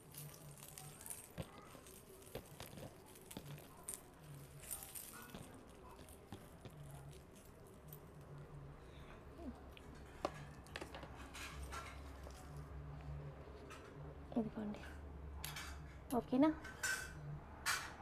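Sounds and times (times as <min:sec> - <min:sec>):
jewellery chains clinking: 0:00.0 - 0:08.4.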